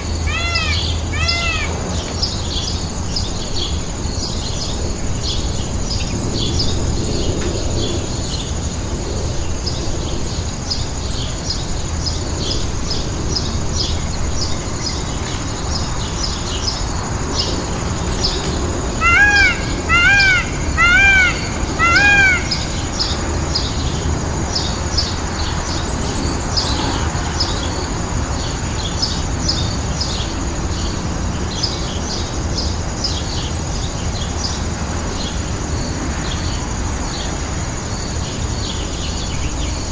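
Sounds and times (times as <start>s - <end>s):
peacock calling: 0.0s - 2.3s, 18.9s - 23.3s
fast high chirping: 19.0s - 23.0s.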